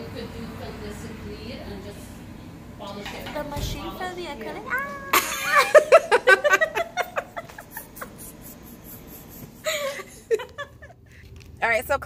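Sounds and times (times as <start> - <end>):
woman laughing: 4.9 - 11.0.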